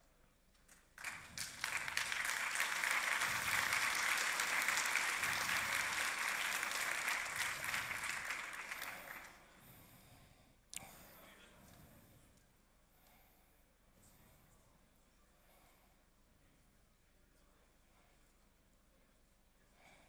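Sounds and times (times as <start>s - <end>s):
audience applauding: 1.0s - 9.4s.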